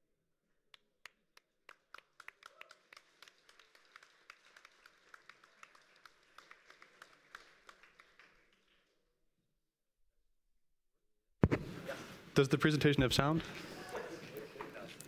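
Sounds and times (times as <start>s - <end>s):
audience applause: 1.7s - 8.8s.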